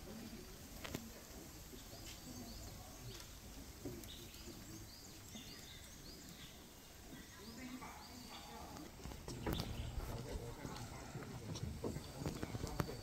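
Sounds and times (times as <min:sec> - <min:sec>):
low background noise: 0:00.0 - 0:13.0
small bird chirping: 0:01.6 - 0:11.0.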